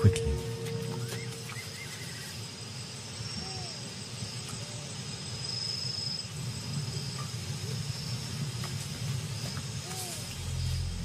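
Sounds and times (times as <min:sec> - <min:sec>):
low rumble: 0:00.0 - 0:01.8, 0:10.1 - 0:11.0
crickets trilling: 0:00.0 - 0:11.0.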